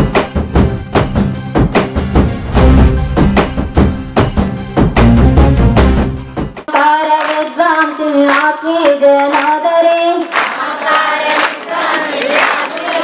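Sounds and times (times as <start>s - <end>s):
music with heavy drum beat: 0.0s - 6.7s
hand claps: 6.6s - 13.0s
woman singing: 6.7s - 10.4s
group of women singing: 6.8s - 13.0s.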